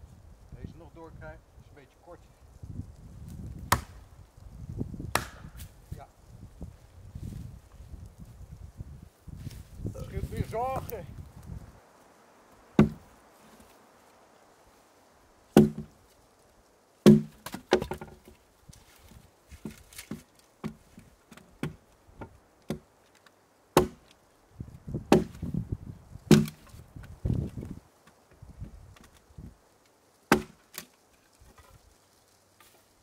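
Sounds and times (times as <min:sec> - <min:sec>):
hatchet chopping wood: 0:03.6 - 0:04.0, 0:05.1 - 0:05.6, 0:12.8 - 0:13.1, 0:15.6 - 0:16.0, 0:17.0 - 0:18.3, 0:19.5 - 0:22.9, 0:23.8 - 0:24.1, 0:25.1 - 0:25.5, 0:26.3 - 0:26.8, 0:30.3 - 0:30.9.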